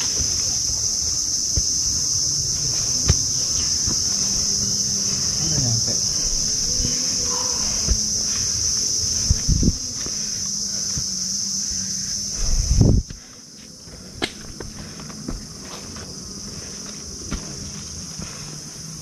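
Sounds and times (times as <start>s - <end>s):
low thumps: 0.0s - 10.2s
insects droning: 0.0s - 19.0s.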